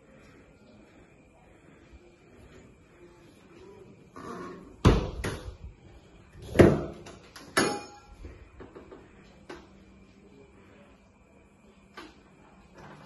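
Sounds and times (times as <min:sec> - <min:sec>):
metallic ring of door hardware: 0:07.4 - 0:08.2.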